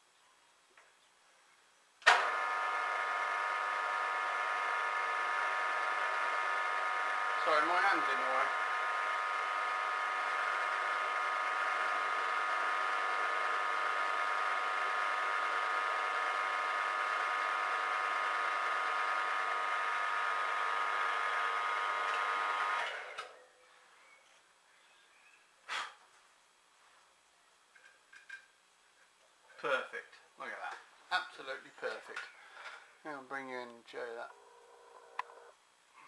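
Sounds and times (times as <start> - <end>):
milling machine whine: 2.1 - 23.2.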